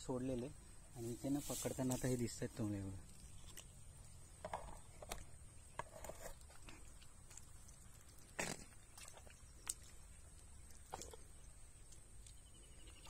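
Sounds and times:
squelches in muddy water: 0:02.7 - 0:13.0.

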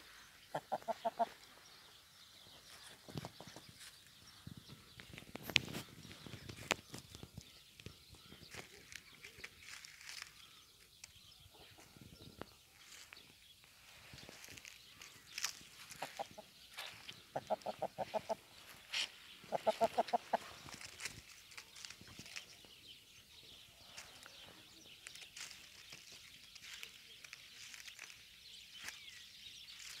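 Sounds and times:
rustles in dry leaves: 0:00.0 - 0:11.6, 0:12.4 - 0:30.0
hen clucking: 0:00.5 - 0:01.5, 0:15.8 - 0:20.8.

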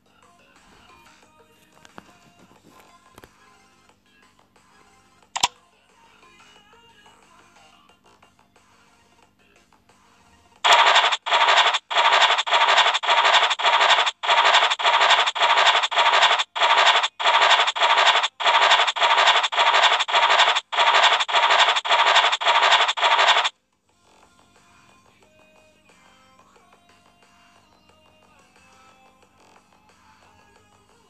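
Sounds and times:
scratching sound effect: 0:10.6 - 0:23.5.

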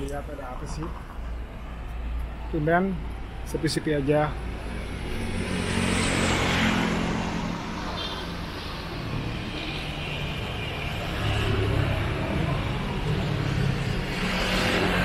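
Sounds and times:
traffic passing on road: 0:00.0 - 0:15.0.

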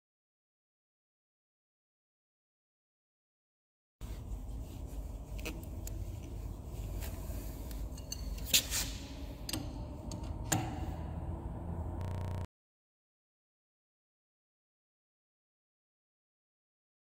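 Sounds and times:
low steady hum: 0:04.0 - 0:12.5
metal hose fittings clinking: 0:05.4 - 0:10.3.

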